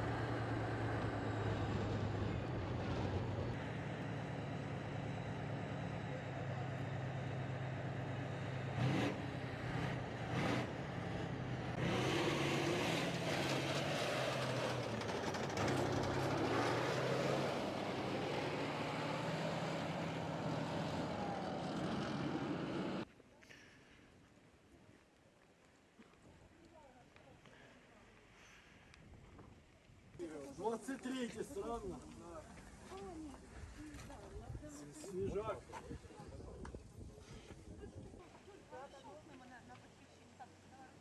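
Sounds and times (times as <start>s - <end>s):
tank engine running: 0.0s - 23.1s
track clatter: 12.8s - 23.0s.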